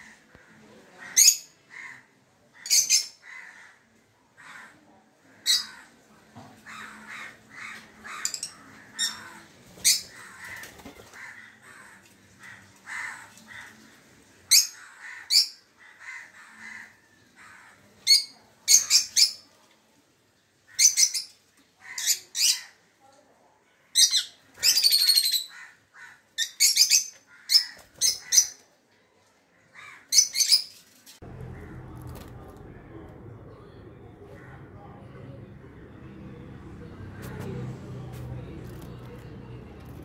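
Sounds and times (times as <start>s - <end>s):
birds chattering: 5.4s - 19.5s.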